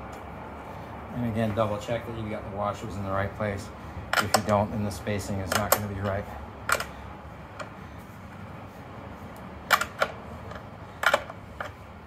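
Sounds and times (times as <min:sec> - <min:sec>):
wrench clicking on nut: 0:05.5 - 0:07.0, 0:09.4 - 0:11.8.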